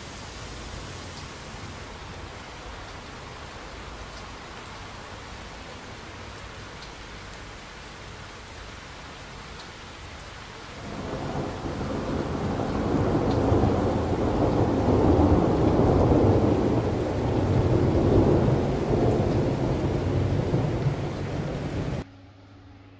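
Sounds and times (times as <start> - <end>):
rain hiss: 0.0 - 22.0
thunder rolling: 10.8 - 22.0.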